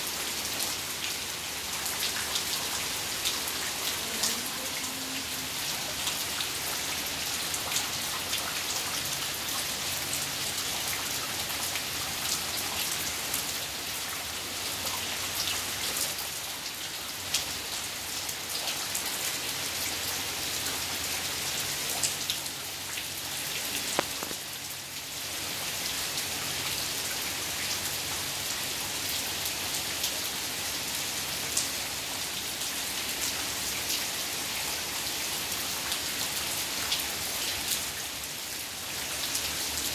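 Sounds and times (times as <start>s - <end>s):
heavy rain pouring: 0.0s - 39.9s.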